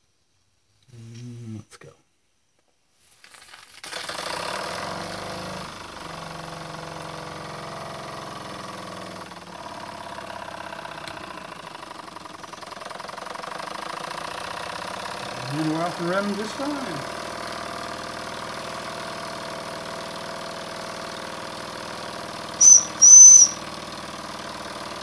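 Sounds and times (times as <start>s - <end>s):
steam engine running: 14.3s - 17.9s.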